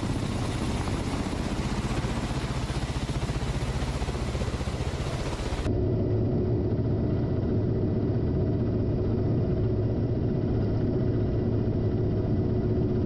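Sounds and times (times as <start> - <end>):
steady rushing noise: 0.0 - 10.4
helicopter rotors beating: 0.0 - 13.0.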